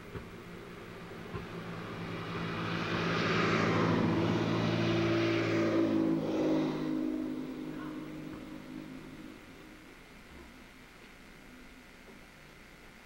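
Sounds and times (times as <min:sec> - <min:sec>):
vehicle passing by: 0:00.0 - 0:09.9.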